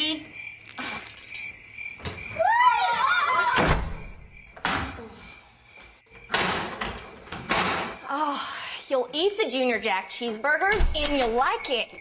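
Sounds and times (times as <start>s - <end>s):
high wavering cry: 2.3s - 3.6s
front door slamming: 3.5s - 5.0s, 10.7s - 11.4s.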